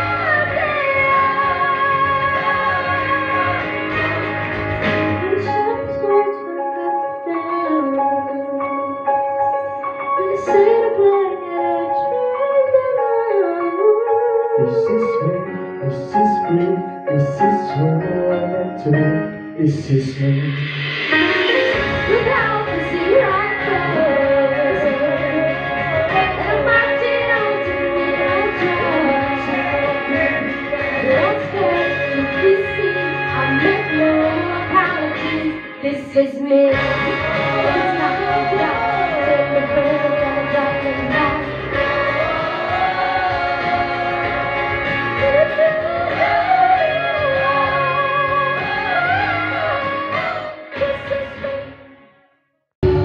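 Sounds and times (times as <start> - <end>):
choir singing into microphones: 0.0 - 5.6, 20.2 - 35.7, 36.8 - 51.7
electronic keyboard chords: 0.0 - 36.0
instrumental accompaniment: 14.6 - 51.1.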